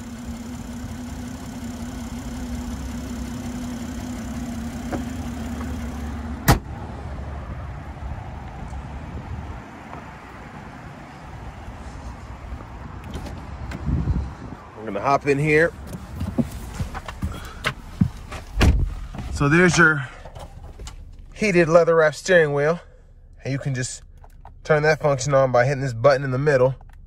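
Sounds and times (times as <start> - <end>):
car engine hum: 0.0 - 27.0
car hood slamming shut: 6.4 - 6.7, 18.6 - 19.1
low rumble: 18.8 - 27.0.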